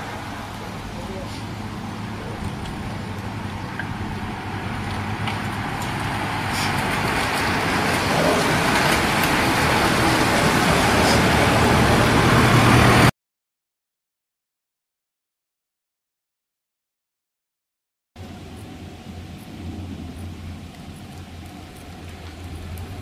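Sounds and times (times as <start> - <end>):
van engine hum: 0.0 - 13.1, 18.2 - 23.0.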